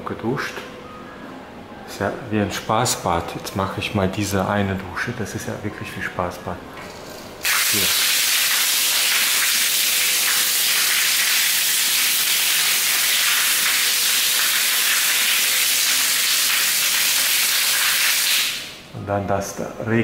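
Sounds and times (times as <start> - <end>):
shower water pouring: 7.4 - 18.8.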